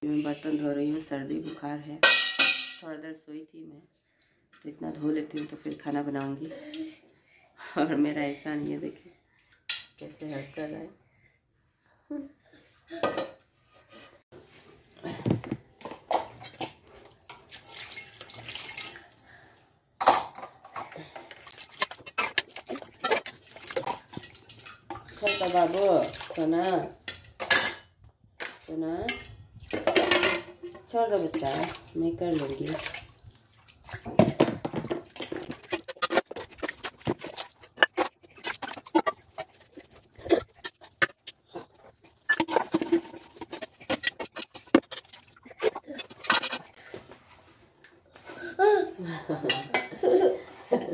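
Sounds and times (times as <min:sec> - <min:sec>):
scrubbing dishes in metal basin: 0:00.0 - 0:02.8, 0:04.6 - 0:06.9, 0:08.1 - 0:10.9, 0:12.9 - 0:19.4, 0:20.0 - 0:47.4, 0:49.3 - 0:50.9
metal dishes clattering: 0:02.0 - 0:02.8, 0:09.7 - 0:10.0, 0:12.9 - 0:14.1, 0:20.0 - 0:25.9, 0:27.0 - 0:28.0, 0:29.1 - 0:31.7, 0:34.1 - 0:46.8, 0:49.4 - 0:50.9
steel utensils and lids clinking: 0:20.0 - 0:27.9, 0:34.7 - 0:46.8.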